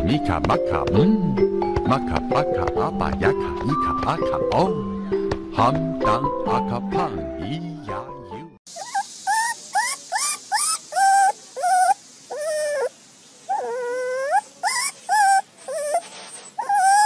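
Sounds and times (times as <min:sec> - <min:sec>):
puppy whimpering: 0:08.7 - 0:12.9, 0:13.5 - 0:17.0.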